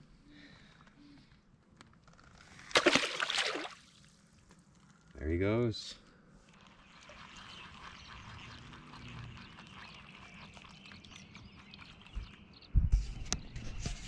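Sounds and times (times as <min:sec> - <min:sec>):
animal clicks and chirps: 0:07.2 - 0:13.4.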